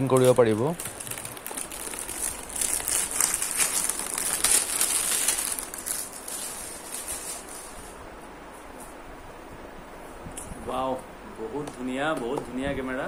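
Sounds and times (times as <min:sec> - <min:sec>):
plastic wrapping crinkling: 0:00.0 - 0:08.0.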